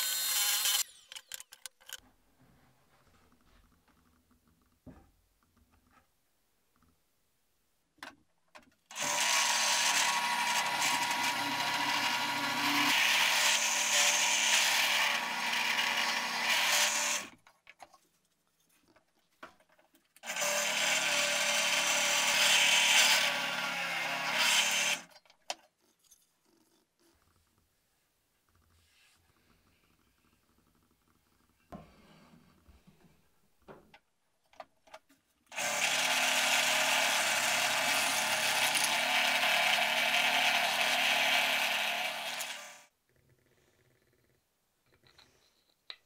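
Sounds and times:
drill press boring wood: 8.9 - 17.3, 20.2 - 25.1, 35.5 - 42.9.

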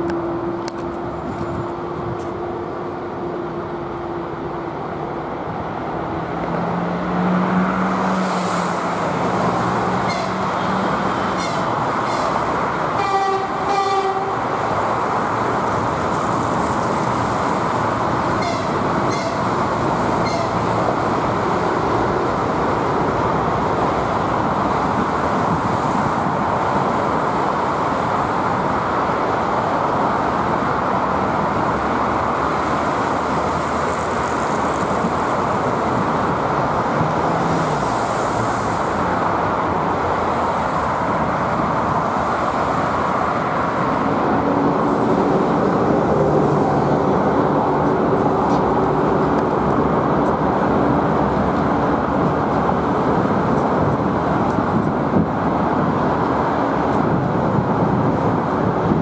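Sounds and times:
cars passing: 0.0 - 59.0
train rumbling across bridge: 0.0 - 59.0
train horn toot: 10.0 - 10.5, 13.0 - 14.4.

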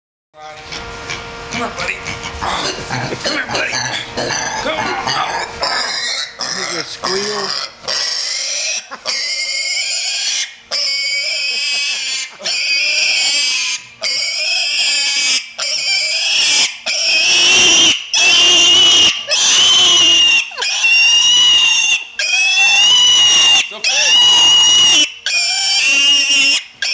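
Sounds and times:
pig squealing shrilly: 0.7 - 26.9.

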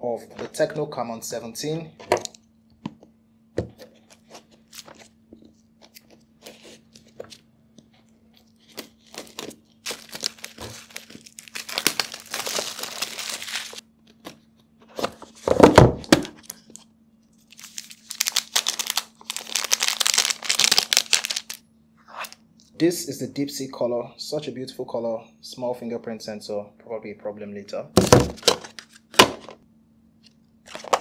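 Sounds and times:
faint steady hum: 0.0 - 31.0
plastic film crinkling: 8.5 - 13.8, 17.5 - 21.6.

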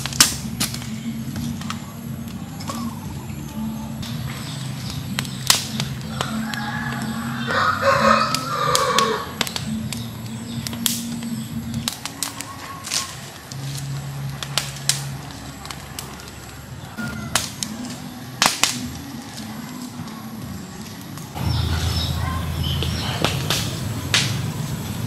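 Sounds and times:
wood fire crackling: 0.0 - 25.0
rooster crowing: 6.0 - 9.5, 16.9 - 18.3.

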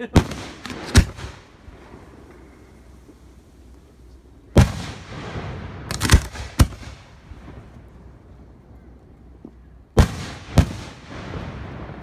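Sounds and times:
fireworks bangs: 0.0 - 3.4, 4.5 - 8.2, 9.4 - 12.0
fireworks crackling: 0.0 - 12.0.

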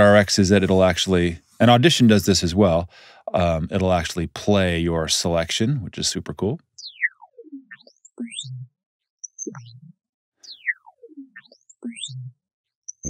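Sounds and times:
swooping whistling tones: 6.8 - 12.3.

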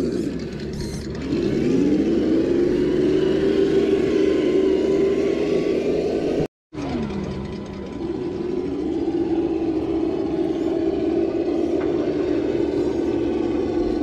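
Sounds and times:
rc car electric motor whining: 0.0 - 4.2.

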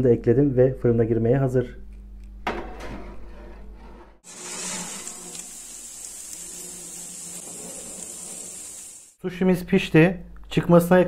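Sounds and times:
hot tray sizzling hiss: 4.2 - 9.2.

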